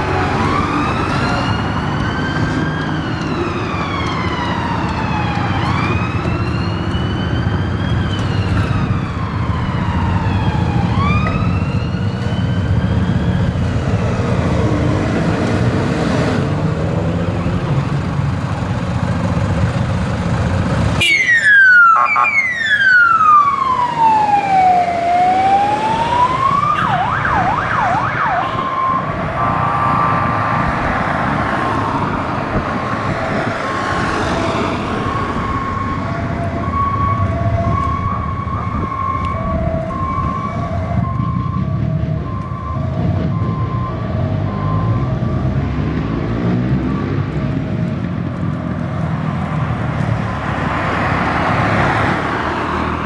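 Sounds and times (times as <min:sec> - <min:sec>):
engine and traffic rumble: 0:00.0 - 0:53.0
siren wailing and yelping: 0:00.2 - 0:14.0, 0:21.0 - 0:32.2, 0:32.9 - 0:45.6.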